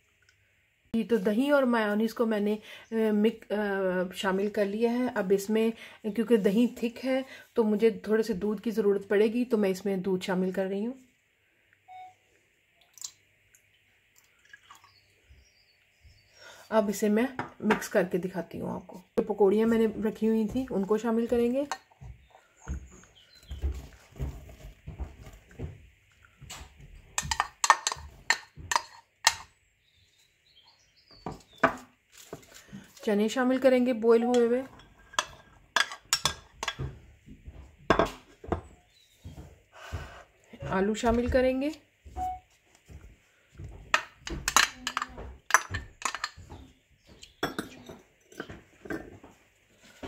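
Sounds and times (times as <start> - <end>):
spatula scraping and tapping bowl: 27.1 - 29.5.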